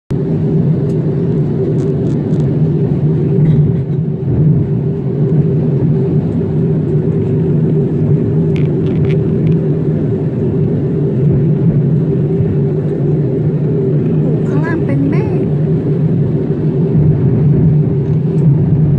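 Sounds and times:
jet airliner cabin noise: 0:00.1 - 0:18.9
steady low hum: 0:00.1 - 0:18.9.

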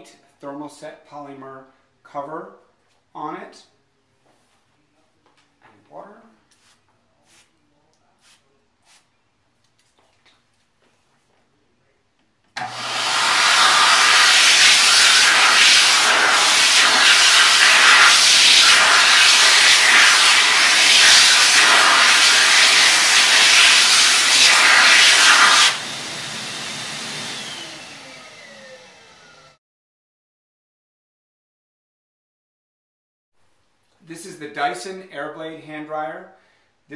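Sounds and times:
hand dryer blowing: 0:12.6 - 0:29.6
motor winding down whine: 0:12.6 - 0:29.6.

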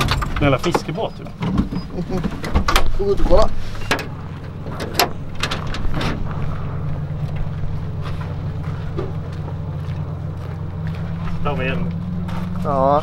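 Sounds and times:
hood clicks: 0:00.0 - 0:10.1
car engine idling: 0:00.0 - 0:13.0.

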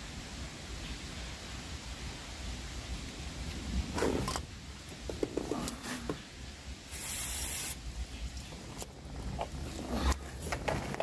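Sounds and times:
short spray hiss: 0:06.9 - 0:07.8.

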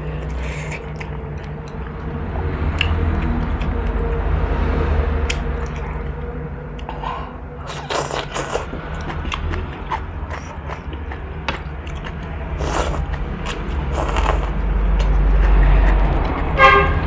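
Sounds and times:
passing vehicle rumble: 0:00.0 - 0:17.0
noodles slurped and chewed: 0:07.6 - 0:16.3.

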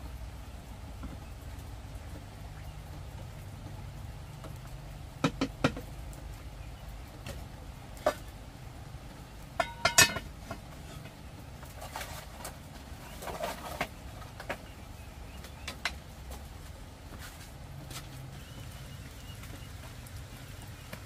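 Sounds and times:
metal pot lid clanking on pot: 0:09.6 - 0:10.3.

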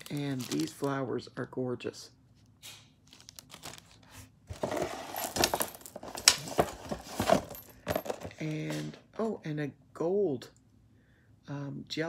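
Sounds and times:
plastic packaging crinkling: 0:00.0 - 0:01.1, 0:03.0 - 0:04.2.

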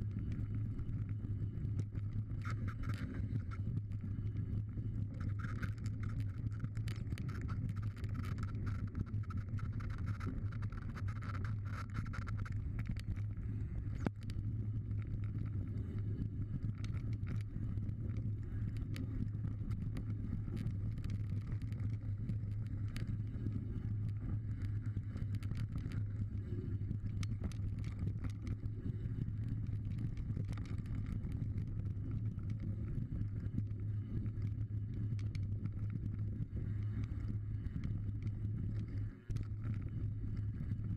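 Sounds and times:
wind rush on microphone: 0:00.0 - 0:40.9
bike clicks and rattles: 0:05.2 - 0:33.6.

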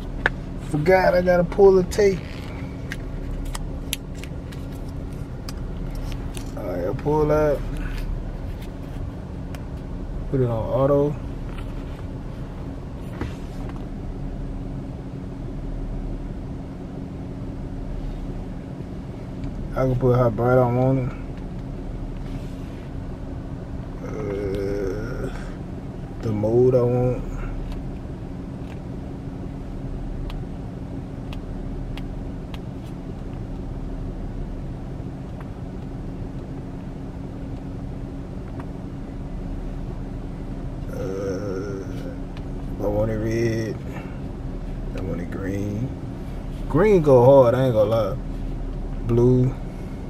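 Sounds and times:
car engine hum inside cabin: 0:00.0 - 0:50.0.

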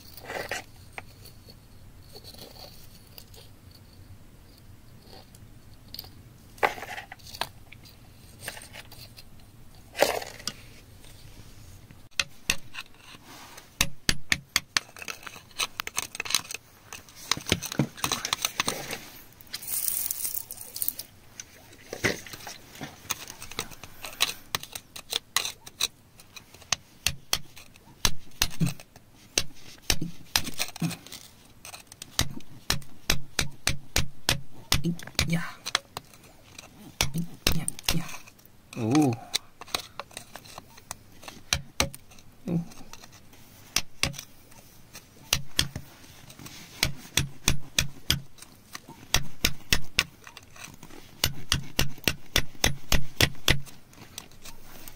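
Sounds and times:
metal tool scraping soil and rock: 0:00.0 - 0:03.6, 0:14.8 - 0:28.9, 0:35.6 - 0:47.2.

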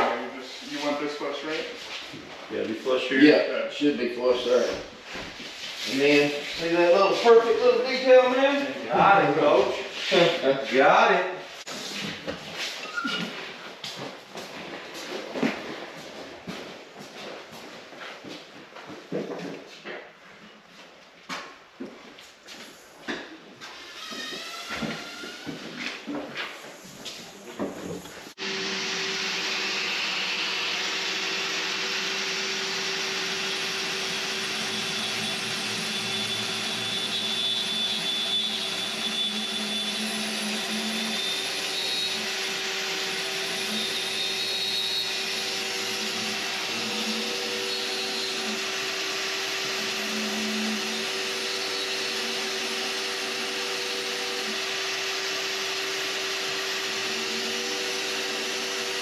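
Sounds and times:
angle grinder sanding concrete: 0:05.7 - 0:12.0.

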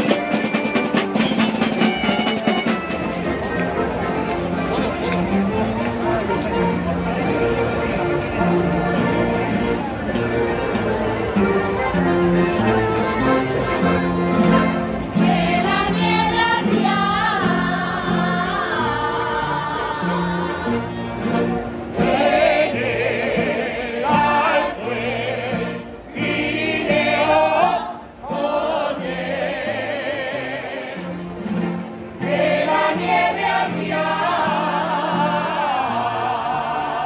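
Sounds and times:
accordions: 0:00.0 - 0:37.0
acoustic guitars: 0:00.0 - 0:37.0
group singing in chorus: 0:15.1 - 0:21.0, 0:21.9 - 0:37.0.

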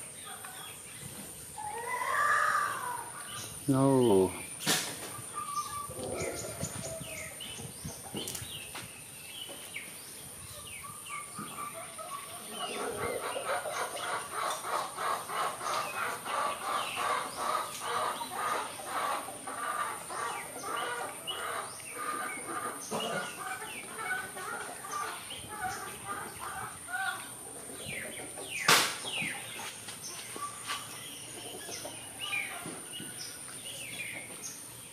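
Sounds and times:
bird clucking: 0:11.3 - 0:29.7.

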